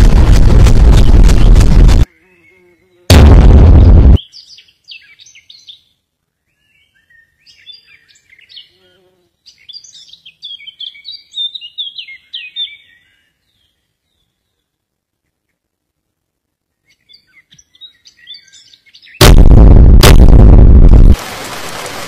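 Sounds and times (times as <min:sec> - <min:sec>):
loud burst of noise: 0:00.0 - 0:02.1, 0:03.1 - 0:04.2, 0:19.2 - 0:22.0.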